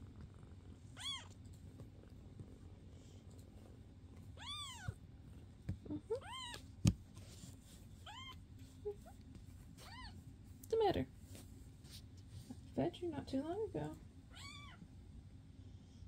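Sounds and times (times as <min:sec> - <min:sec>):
kitten meowing: 0:01.0 - 0:01.3, 0:04.4 - 0:05.0, 0:06.1 - 0:06.6, 0:14.3 - 0:14.8.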